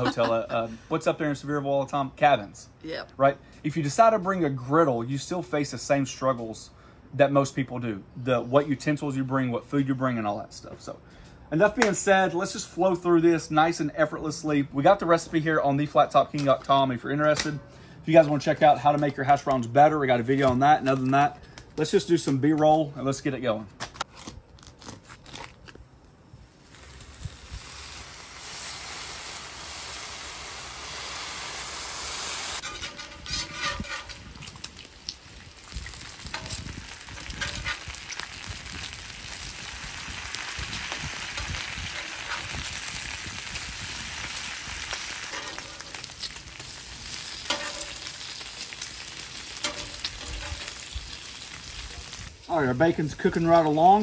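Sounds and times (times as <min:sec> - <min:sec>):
bacon sizzling on griddle: 0:26.5 - 0:54.0
metal spatula scraping and tapping: 0:32.6 - 0:34.2, 0:47.5 - 0:48.0, 0:49.6 - 0:50.7.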